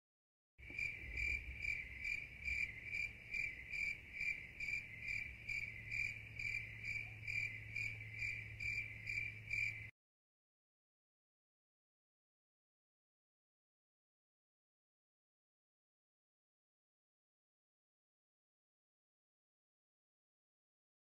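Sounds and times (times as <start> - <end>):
faint low hum: 0.6 - 9.9.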